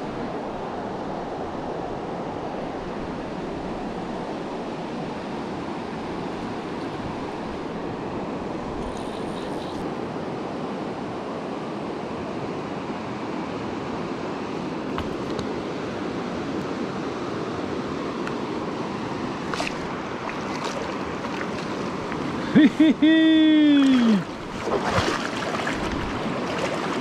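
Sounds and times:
river water over stones: 14.6 - 27.0.

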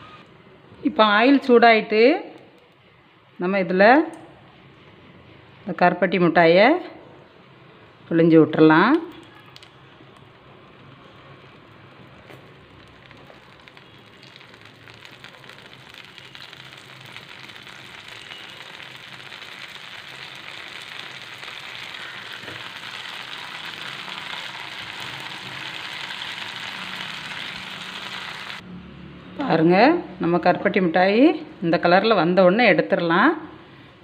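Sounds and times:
batter sizzling in hot oil: 9.5 - 28.6.

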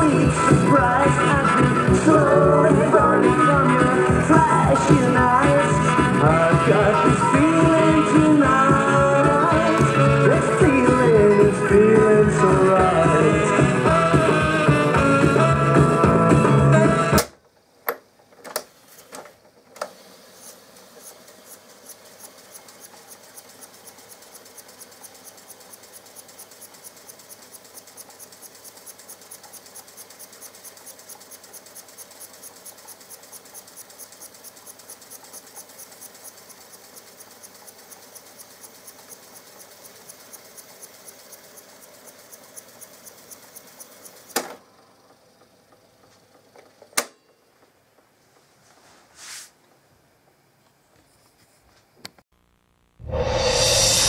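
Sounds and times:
tape reels whirring: 0.0 - 48.2
even ticking: 21.4 - 44.4.

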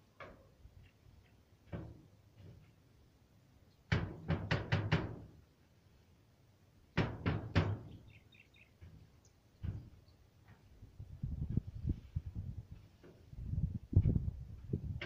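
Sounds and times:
sharp knocks: 3.9 - 5.3, 7.0 - 8.0.

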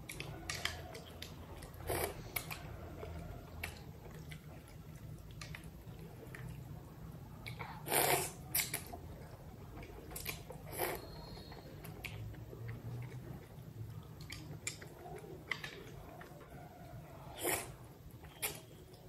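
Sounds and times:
chewing and mouth noises: 0.0 - 19.0
person slurping noodles: 7.8 - 8.4, 17.3 - 17.8.

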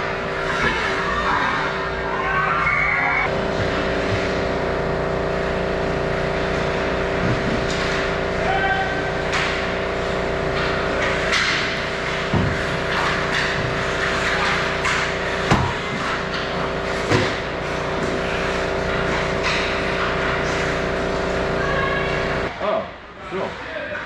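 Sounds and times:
hockey sticks and puck clacking: 7.6 - 9.8, 10.5 - 21.2
skates scraping ice: 10.1 - 21.5.

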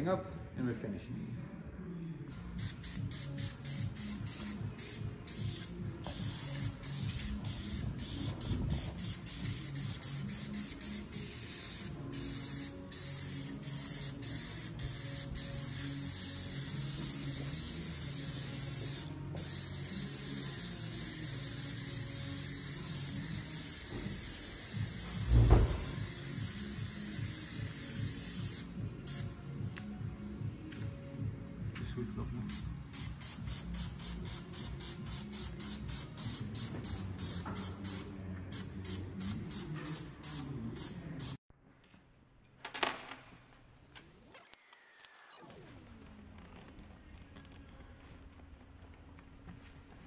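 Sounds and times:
spray adhesive hissing: 2.4 - 29.3, 32.5 - 41.4
dull thump: 25.2 - 26.0.

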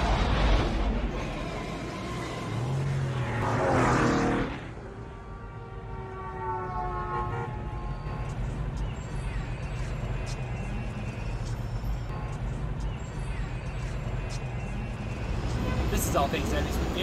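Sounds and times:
traffic noise: 0.0 - 17.0
car passing by: 2.2 - 5.0.

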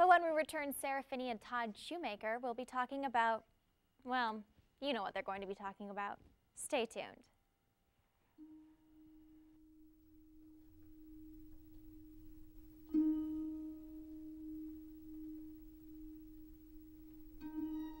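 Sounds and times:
ringing plucked note: 8.4 - 18.0.

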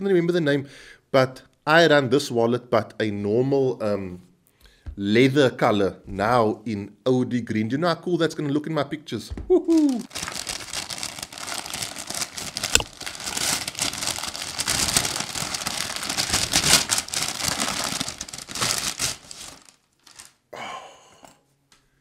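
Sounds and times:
paper rustle: 9.7 - 20.4
paper tearing and crumpling: 9.7 - 20.4.

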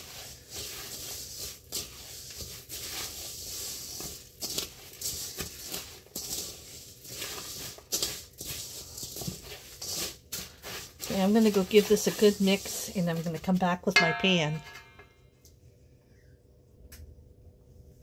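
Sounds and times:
spatula scraping steel bowl: 0.0 - 15.0.

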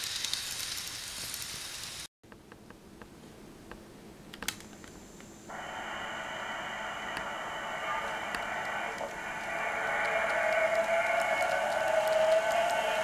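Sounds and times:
model train running on track: 0.0 - 1.8, 5.5 - 13.0
thin high whine: 5.4 - 13.0.

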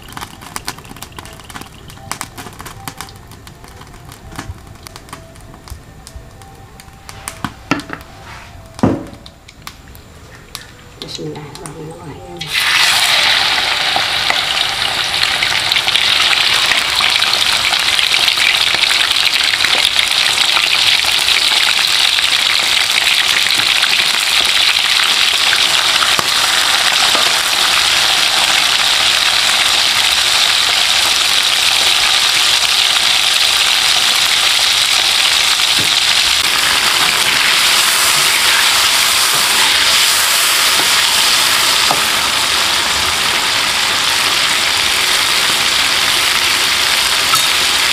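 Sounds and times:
shrimp sizzling in hot oil: 0.0 - 5.1, 12.4 - 47.9.

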